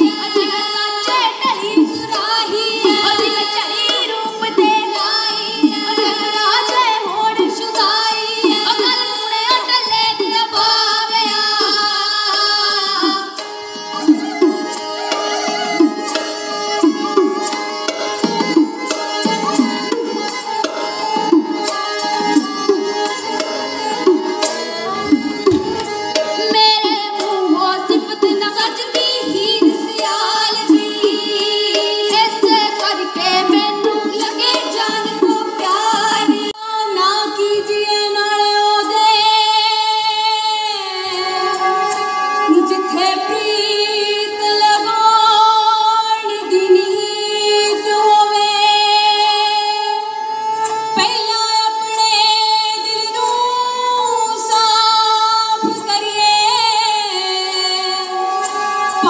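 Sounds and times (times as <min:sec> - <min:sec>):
women singing folk song: 0:00.0 - 0:15.9, 0:21.3 - 0:50.1
hand drum: 0:11.6 - 0:36.6.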